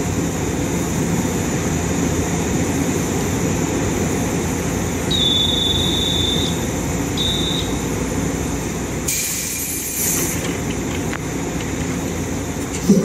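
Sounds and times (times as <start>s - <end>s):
train equipment humming: 0.0s - 13.0s.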